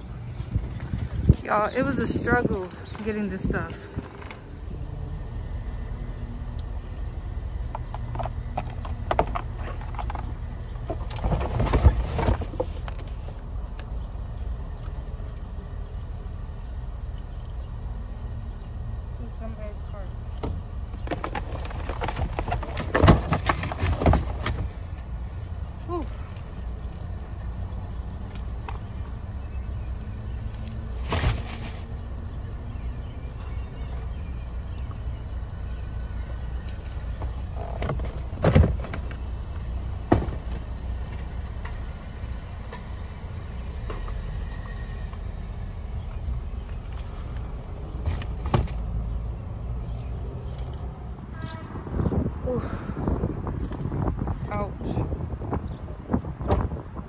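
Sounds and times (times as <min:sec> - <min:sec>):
shopping knocks and clatter: 0:07.8 - 0:13.4, 0:21.0 - 0:24.8, 0:30.5 - 0:32.0, 0:36.8 - 0:41.3, 0:46.9 - 0:49.0.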